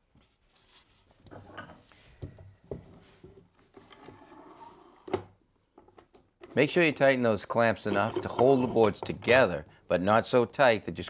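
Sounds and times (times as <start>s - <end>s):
clamps sliding and scraping: 7.8s - 9.4s.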